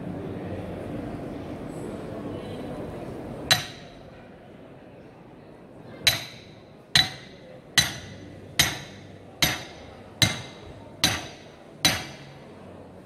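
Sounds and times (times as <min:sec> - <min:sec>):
hammer striking metal spike: 0:03.5 - 0:03.9, 0:06.1 - 0:12.4.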